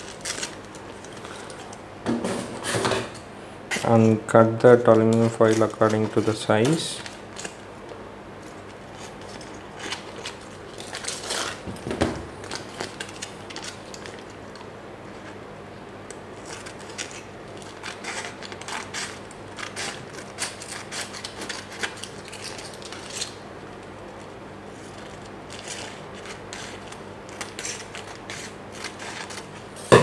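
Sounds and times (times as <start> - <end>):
scissors snipping foil: 0.0 - 1.8, 4.9 - 7.6, 8.9 - 11.6, 16.3 - 23.4, 24.8 - 30.0.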